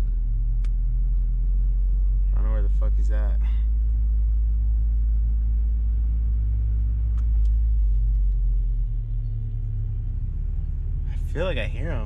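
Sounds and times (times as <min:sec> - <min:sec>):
car engine drone: 0:00.0 - 0:12.0
road rumble: 0:00.0 - 0:12.0.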